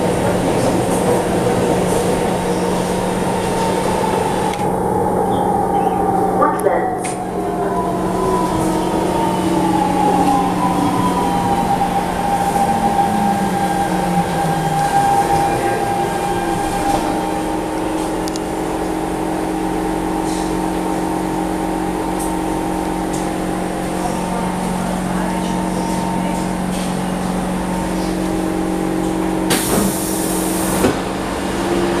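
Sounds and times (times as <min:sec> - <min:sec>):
train equipment hum: 0:00.0 - 0:32.0
train motors whining: 0:00.2 - 0:32.0
train doors hissing: 0:29.4 - 0:31.6.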